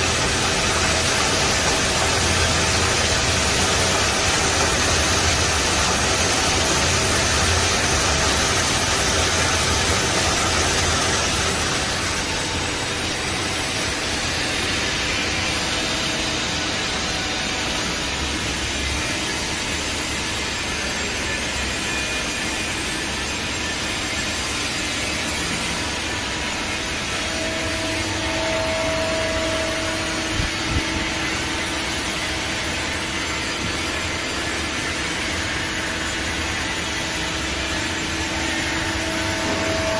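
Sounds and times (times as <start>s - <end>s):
coolant spraying: 0.0s - 15.0s
lathe running a cut: 0.0s - 39.9s.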